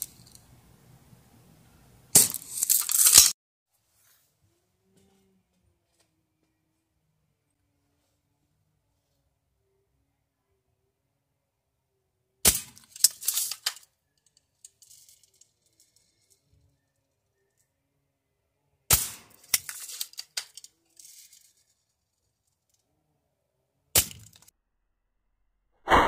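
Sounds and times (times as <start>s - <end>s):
shell pieces clicking and rattling: 2.2s - 3.3s, 12.8s - 16.4s, 19.3s - 21.8s.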